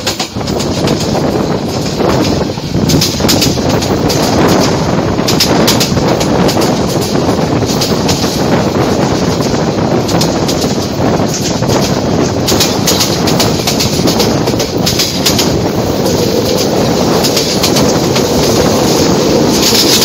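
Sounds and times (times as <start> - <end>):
train wheel clacks: 0.0 - 20.0
train wheels rumbling on rail: 0.0 - 20.0.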